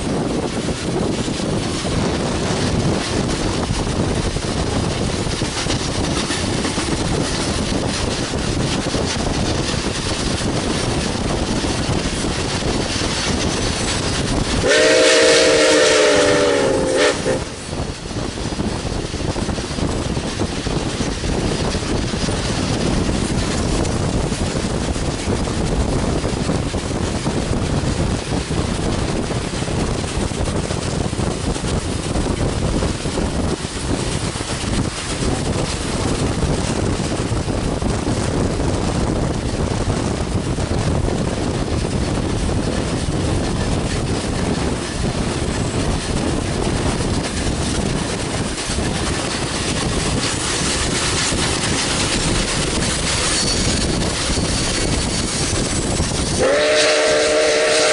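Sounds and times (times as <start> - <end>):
wind rushing: 0.0 - 57.9
steam whistle blast: 14.6 - 17.5, 56.4 - 57.9.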